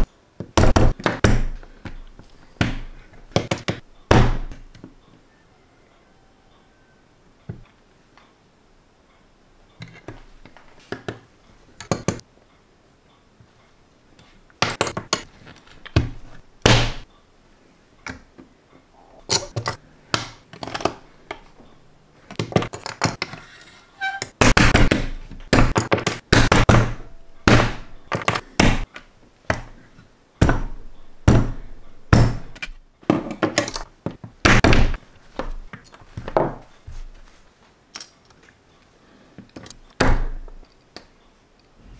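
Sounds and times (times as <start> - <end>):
plastic bricks snapping together: 19.3 - 21.4.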